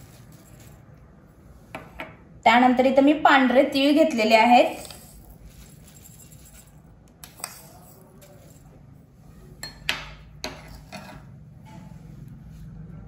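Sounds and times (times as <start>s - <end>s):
spoon clinking on bowls: 4.8s - 8.6s, 9.6s - 11.4s.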